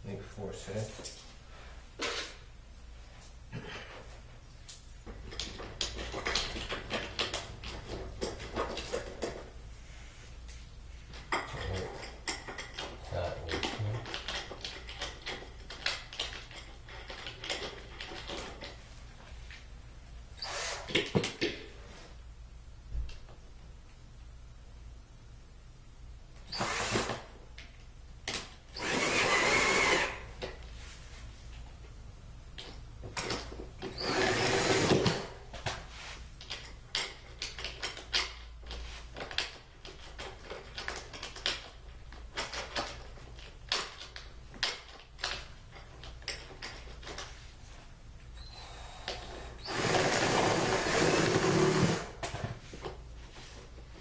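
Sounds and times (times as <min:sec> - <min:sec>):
power drill driving screws: 0:20.4 - 0:21.1, 0:26.5 - 0:27.3, 0:28.8 - 0:30.3, 0:33.9 - 0:35.3, 0:48.4 - 0:52.2
drill click: 0:28.8 - 0:30.2, 0:33.9 - 0:35.3, 0:48.5 - 0:52.1.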